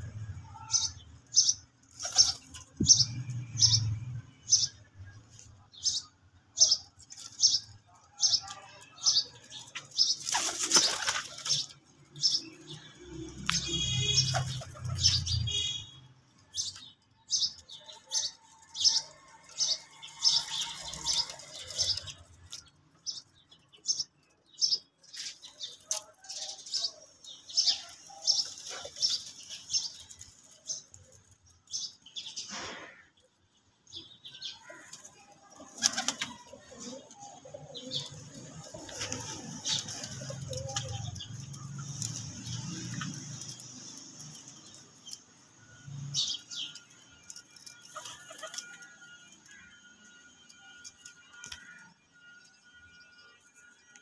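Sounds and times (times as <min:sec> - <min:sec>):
small birds chirping: 0:00.0 - 0:51.8
pigeon wings flapping: 0:10.2 - 0:11.7.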